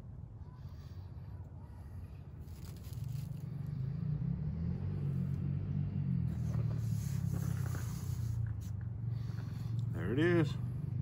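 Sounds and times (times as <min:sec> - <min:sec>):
low engine rumble: 0:00.0 - 0:11.0
wood shavings rustling: 0:02.4 - 0:03.6.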